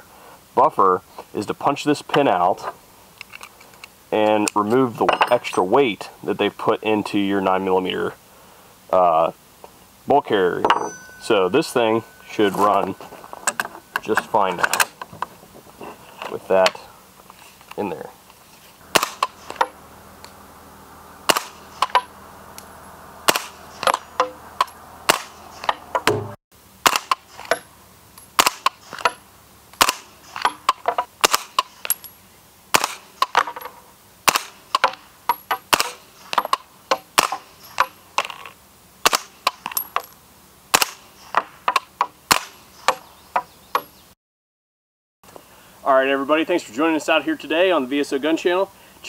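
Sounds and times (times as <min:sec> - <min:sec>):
suppressed gunshots: 0:18.8 - 0:19.8, 0:21.2 - 0:22.1, 0:23.2 - 0:27.3, 0:28.4 - 0:29.2, 0:29.8 - 0:30.5, 0:31.2 - 0:31.7, 0:32.7 - 0:33.4, 0:34.2 - 0:34.9, 0:35.7 - 0:36.0, 0:37.2 - 0:37.9, 0:40.7 - 0:41.0, 0:42.3 - 0:42.6.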